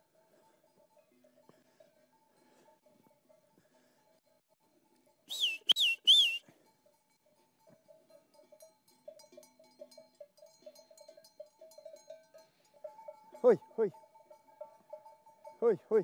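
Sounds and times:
sheep bells clinking: 0.0 - 16.0
warbling herding whistle: 5.3 - 6.4.

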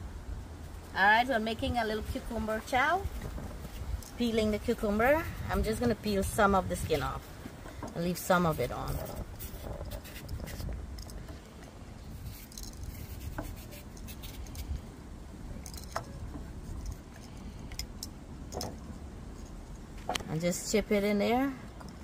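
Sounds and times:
low steady rumble: 0.0 - 22.0
knife scraping cucumber skin: 12.2 - 14.7.

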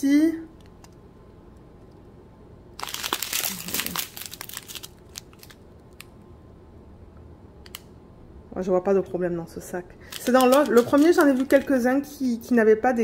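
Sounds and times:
plastic bag crinkling: 2.8 - 6.0, 10.1 - 11.9.

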